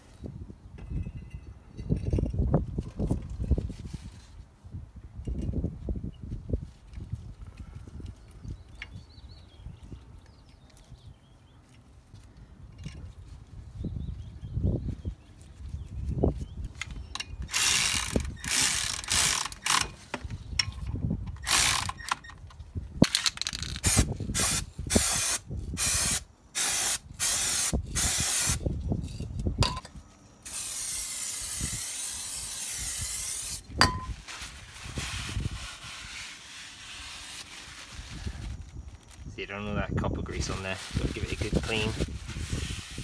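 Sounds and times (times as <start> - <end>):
ratchet wrench clicking: 17.5 - 19.9, 21.4 - 22.2
aerosol spray hissing: 30.5 - 33.6.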